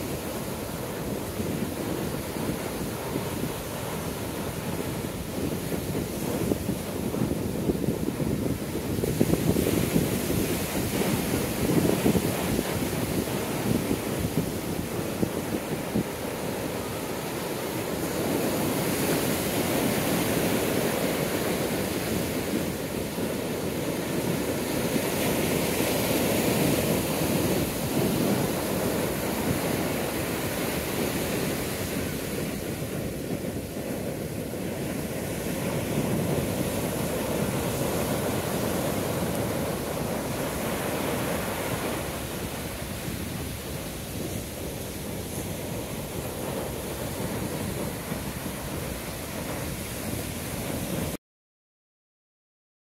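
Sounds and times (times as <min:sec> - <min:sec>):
ocean surf breaking: 0:00.0 - 0:51.2.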